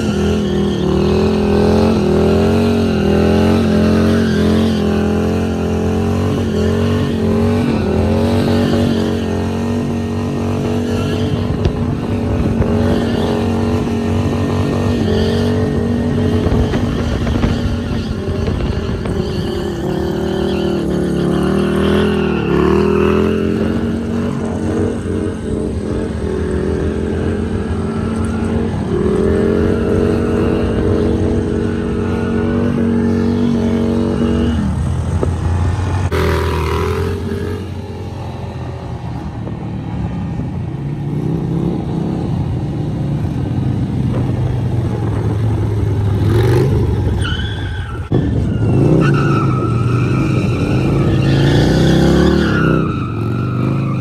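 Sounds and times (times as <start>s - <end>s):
tyre skidding on asphalt: 0.0s - 25.4s, 44.2s - 54.0s
motorcycle engine revving high: 0.0s - 40.0s, 41.1s - 54.0s.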